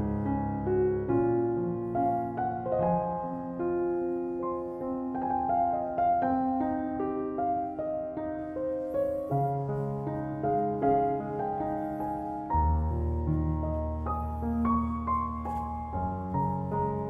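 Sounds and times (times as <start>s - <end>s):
slow piano music: 0.0s - 17.0s.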